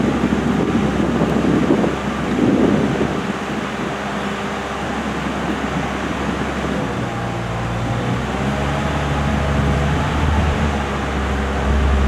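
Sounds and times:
boom lift engine humming: 0.0s - 12.0s.

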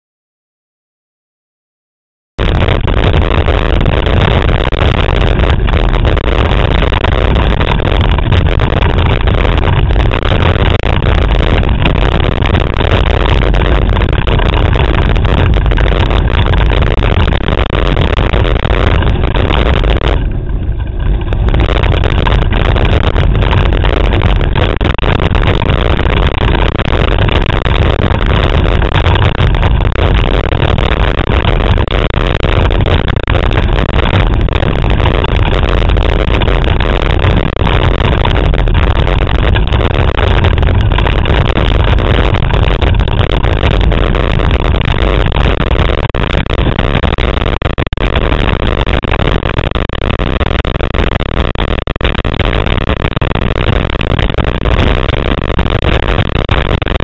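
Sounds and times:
wind buffeting microphone: 2.4s - 50.2s.

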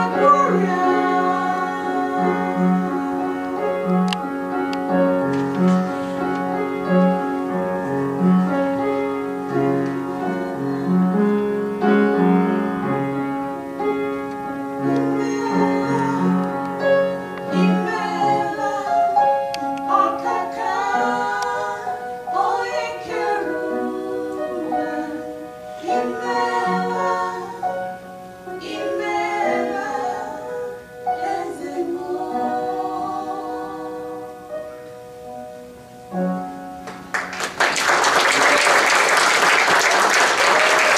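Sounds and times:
women singing together: 0.0s - 3.8s, 15.1s - 34.6s
congregation applauding: 36.8s - 40.9s.

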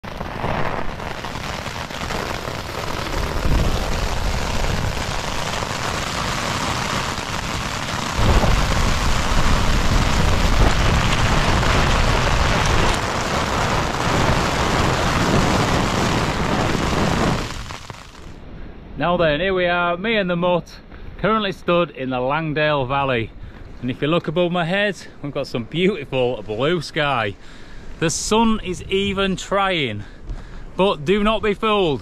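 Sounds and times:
wind and hail battering tent: 0.0s - 18.4s.

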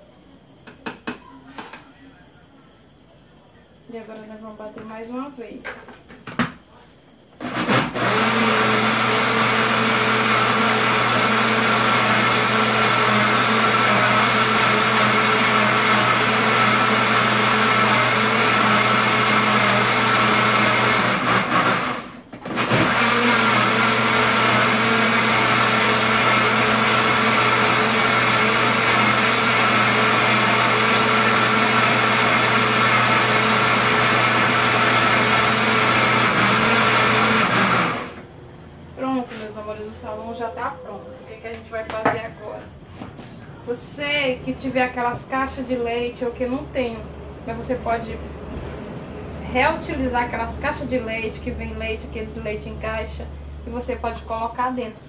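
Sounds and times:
blender motor running: 7.4s - 38.3s.

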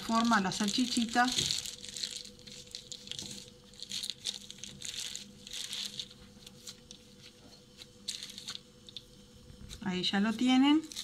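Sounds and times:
plastic crinkling and rustling: 0.0s - 9.9s, 10.7s - 11.0s.

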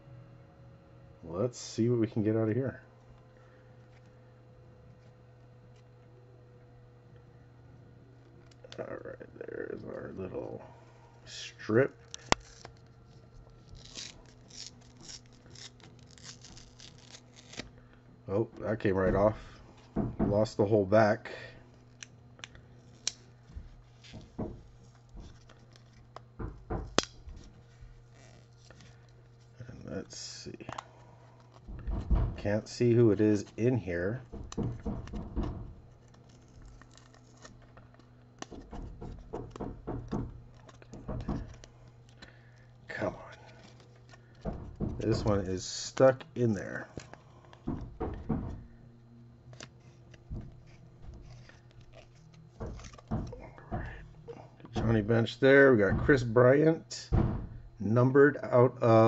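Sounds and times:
cardboard snapping: 12.0s - 12.9s, 13.6s - 17.8s, 25.0s - 27.5s
cardboard tearing and peeling: 12.1s - 17.8s, 36.0s - 39.3s.

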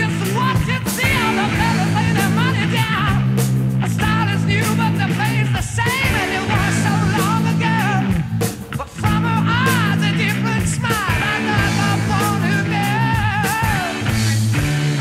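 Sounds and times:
band with held bass notes: 0.0s - 15.0s
lead singer singing: 0.0s - 15.0s.

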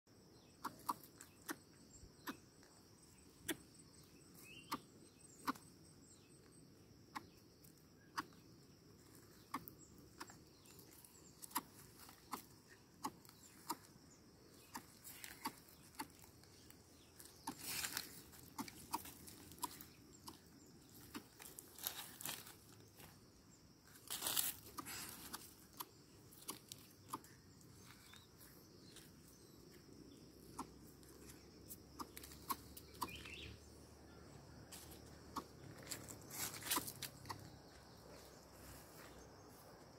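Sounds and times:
faint insect drone: 0.1s - 39.9s
leaves rustling: 14.6s - 25.7s, 34.7s - 37.3s
sandals stepping on dry leaves: 14.9s - 23.2s, 23.8s - 25.5s, 34.7s - 38.2s.

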